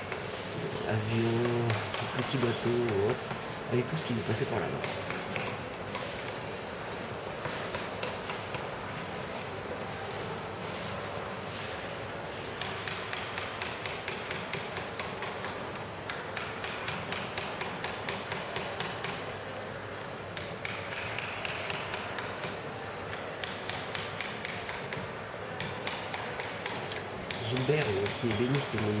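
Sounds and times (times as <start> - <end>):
mallet tapping chisel into wood: 1.3 - 3.4, 12.6 - 19.3, 20.3 - 29.0.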